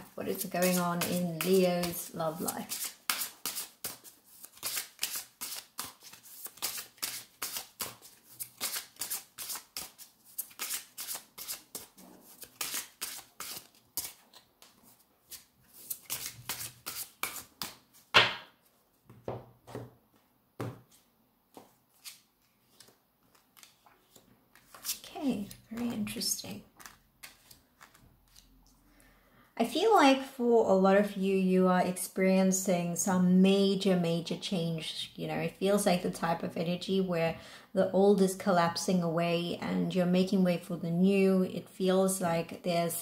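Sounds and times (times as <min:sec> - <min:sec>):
cards being shuffled by hand: 0:00.3 - 0:18.1, 0:20.8 - 0:28.5.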